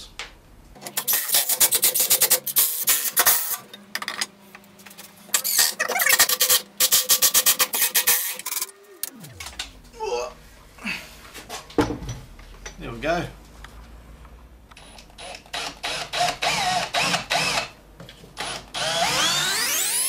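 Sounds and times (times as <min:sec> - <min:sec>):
short falling tone: 0:08.6 - 0:11.3.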